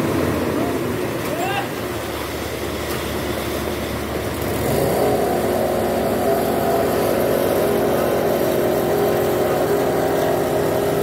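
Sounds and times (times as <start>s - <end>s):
diesel truck engine running: 0.0s - 11.0s.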